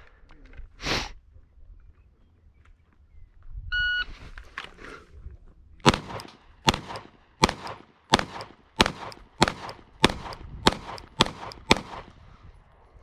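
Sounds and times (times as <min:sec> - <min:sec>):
pistol shots with echo: 0:05.8 - 0:12.4.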